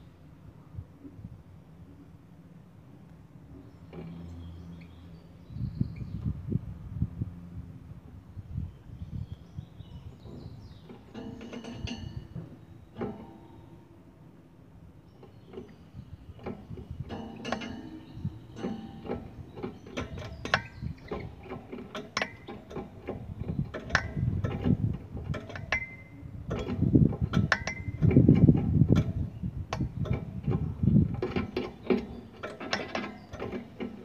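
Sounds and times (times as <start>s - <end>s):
clicks and rattles in wire cage: 10.8s - 13.6s, 16.4s - 34.0s.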